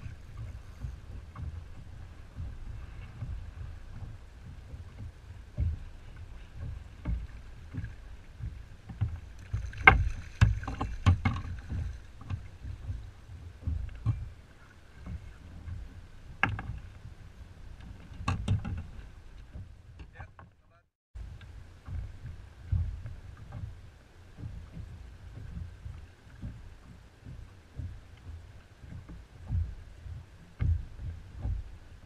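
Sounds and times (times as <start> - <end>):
wind rumbling on microphone: 0.0 - 20.3, 21.2 - 32.0
water splashes: 0.0 - 32.0
sharp knocks on kayak: 7.0 - 13.0.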